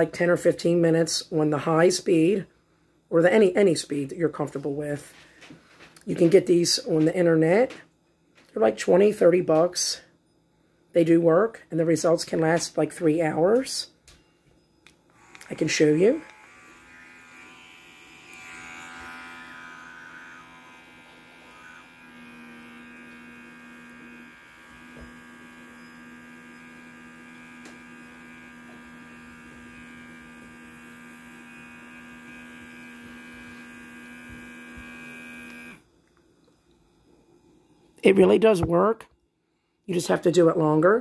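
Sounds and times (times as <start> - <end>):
small suction motor buzzing: 15.1 - 35.9.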